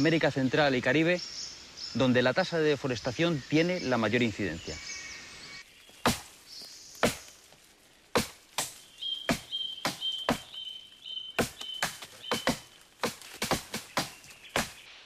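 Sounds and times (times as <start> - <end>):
axes chopping into tree trunk: 6.0 - 6.3, 7.0 - 7.3, 8.2 - 10.6, 11.4 - 14.8
high chirping call: 8.7 - 15.0.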